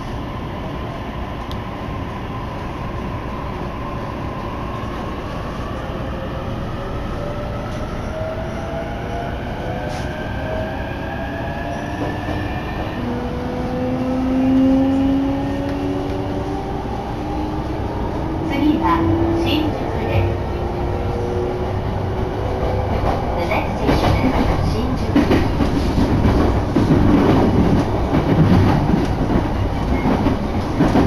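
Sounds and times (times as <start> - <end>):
train rumble: 0.0 - 31.0.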